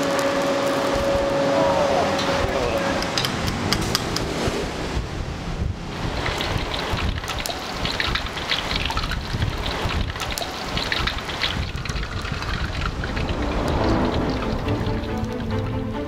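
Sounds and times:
low rumble of fire: 3.6 - 10.3, 11.0 - 16.0.

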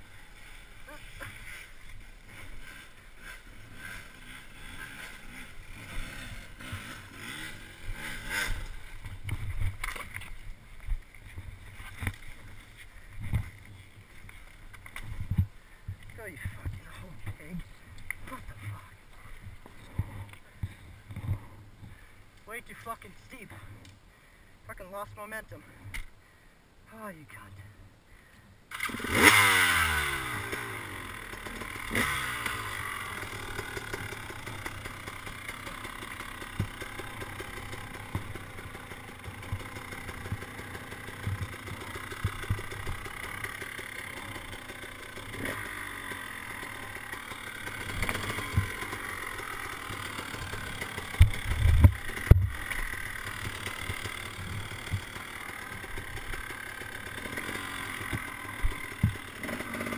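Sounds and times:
dirt bike engine revving: 0.0 - 15.4, 28.7 - 59.9.

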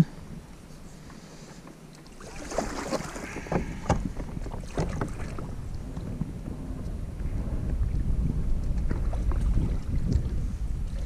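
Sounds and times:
paddle splashing in water: 2.0 - 6.1
paddle knocking against hull: 2.2 - 6.3
wind buffeting microphone: 2.2 - 11.0.

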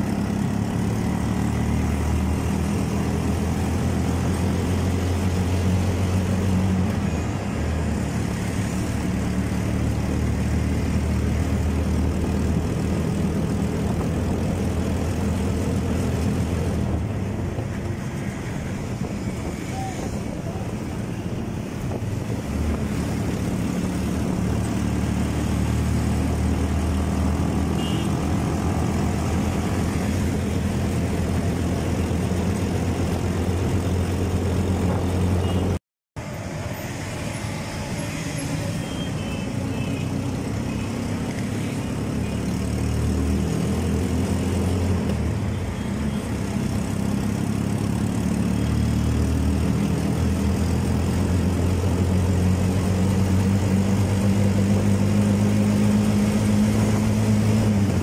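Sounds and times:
road noise: 0.0 - 58.0
surrounding traffic: 0.0 - 58.0
vehicle engine hum: 0.0 - 58.0.

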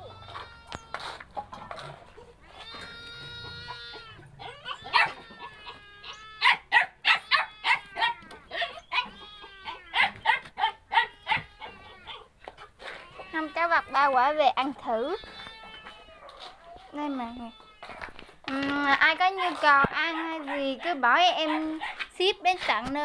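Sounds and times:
dog whining: 0.0 - 14.1, 15.2 - 18.2.

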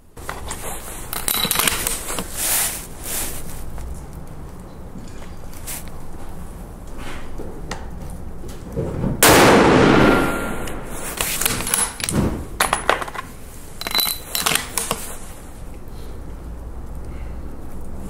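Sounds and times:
rifle shot: 9.2 - 11.0.

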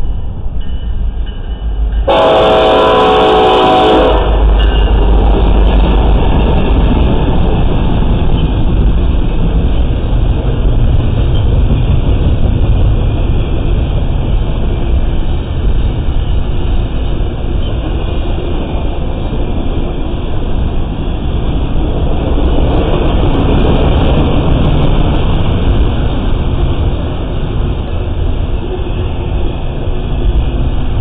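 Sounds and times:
train rumbling past: 0.0 - 31.0
locomotive horn blast: 2.1 - 4.6.

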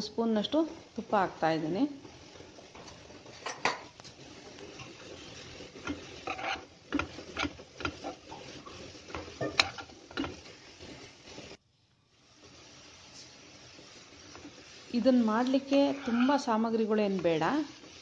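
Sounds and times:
low sizzle: 0.0 - 18.0
spoon scraping a pan: 2.0 - 11.6, 14.0 - 18.0.

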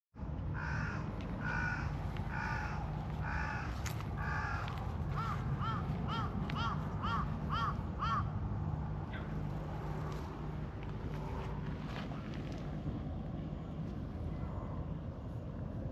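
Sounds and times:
low background hum: 0.2 - 15.9
crows cawing: 0.5 - 8.4, 9.1 - 9.4.

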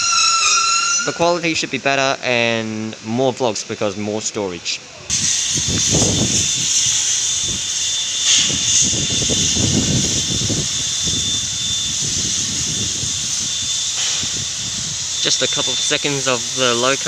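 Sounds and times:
faint whistling tone: 0.0 - 1.4, 10.9 - 16.7
steam locomotive hissing steam: 0.0 - 4.2, 4.8 - 17.0.

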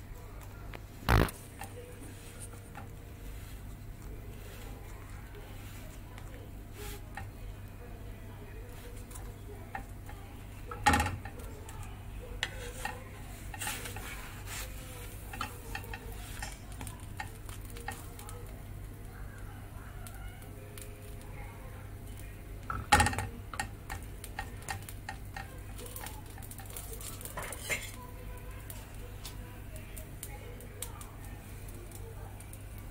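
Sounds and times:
sandwich sizzling on griddle: 0.3 - 32.9
spatula scraping and tapping: 1.2 - 19.0, 22.1 - 29.4.

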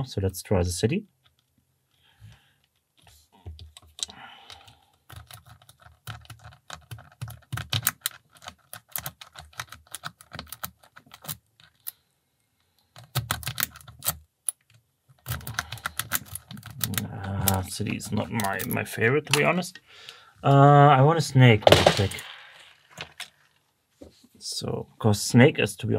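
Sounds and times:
lock rake clicking in padlock: 13.0 - 18.7.

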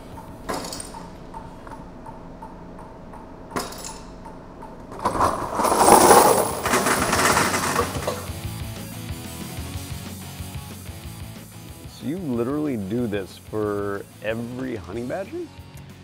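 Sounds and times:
metal pieces clattering into box: 0.5 - 1.0, 4.9 - 8.4.

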